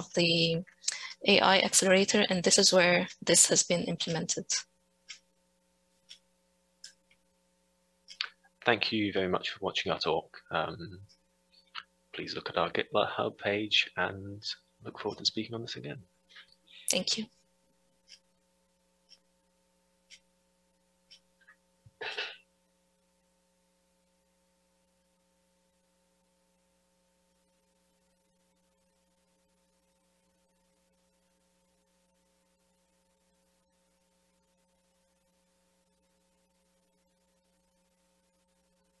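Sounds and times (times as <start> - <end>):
faint steady hum: 0.0 - 39.0
soft clicks: 6.0 - 6.2.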